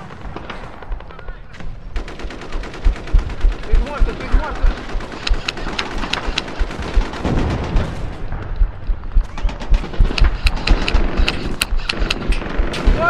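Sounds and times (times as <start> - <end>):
airsoft guns firing: 0.0 - 13.0
low thuds of movement: 2.8 - 12.6.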